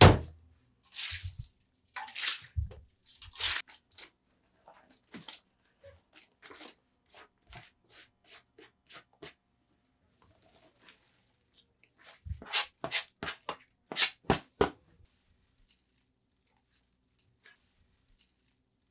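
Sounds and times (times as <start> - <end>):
onion scraped off cutting board: 12.0 - 14.4.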